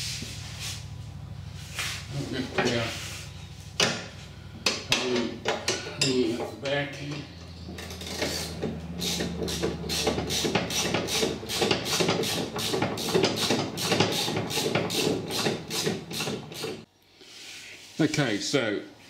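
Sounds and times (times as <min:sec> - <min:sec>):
low steady hum: 0:00.0 - 0:10.6.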